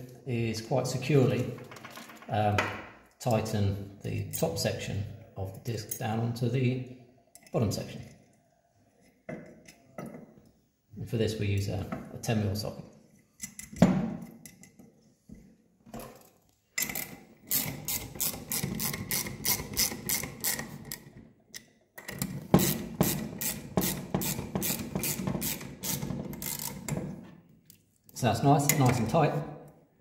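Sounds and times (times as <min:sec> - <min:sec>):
ratchet clicking: 0:16.8 - 0:21.0, 0:22.6 - 0:26.9.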